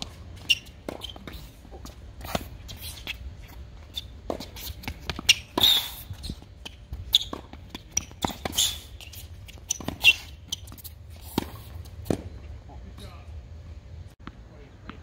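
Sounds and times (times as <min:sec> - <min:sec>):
shoes scuffing and squeaking: 0:00.0 - 0:12.6.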